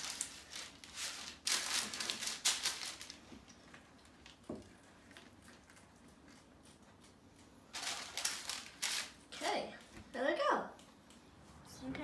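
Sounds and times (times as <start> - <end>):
baking paper rustling and crinkling: 0.0 - 9.5.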